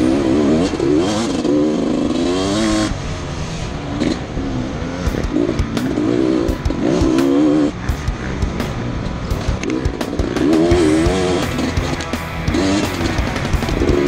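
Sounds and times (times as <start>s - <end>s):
dirt bike engine revving: 0.0s - 14.0s
sharp knocks and clatters: 5.1s - 14.0s.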